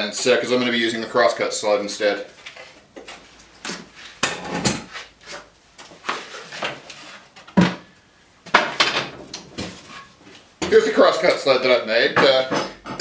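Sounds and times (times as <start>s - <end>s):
wooden knocks and clunks: 12.2s - 13.0s.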